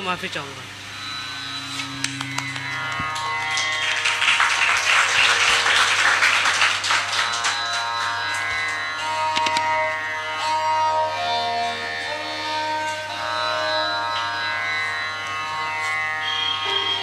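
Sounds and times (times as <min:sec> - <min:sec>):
bowed string notes: 0:00.0 - 0:17.0
steady drone: 0:00.0 - 0:17.0
audience applauding: 0:02.0 - 0:09.6.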